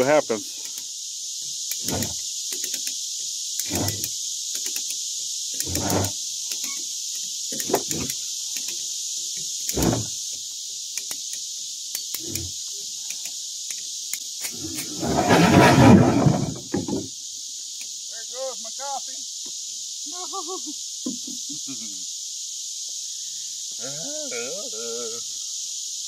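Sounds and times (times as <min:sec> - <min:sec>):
insect drone: 0:00.0 - 0:26.0
winch creaking and knocking: 0:05.6 - 0:06.1, 0:09.8 - 0:10.1, 0:14.8 - 0:17.1
floor grinding rumble: 0:14.8 - 0:17.0.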